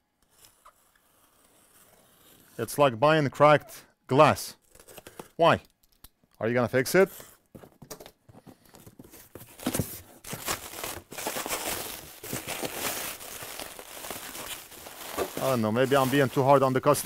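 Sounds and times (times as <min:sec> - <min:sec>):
cardboard box rustling: 0:07.5 - 0:17.0
bubble wrap crinkling: 0:09.2 - 0:17.0.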